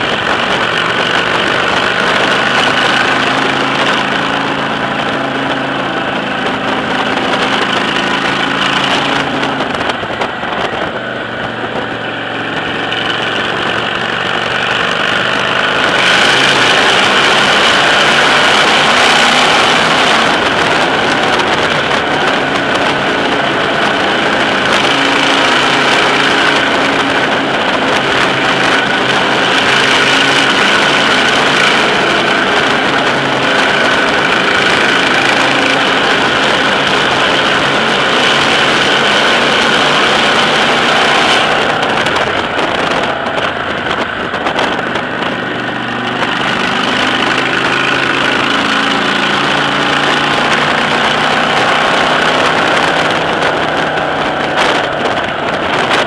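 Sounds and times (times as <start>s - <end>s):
motorcycle engine cruising: 0.0s - 56.0s
road and wind noise: 0.0s - 56.0s.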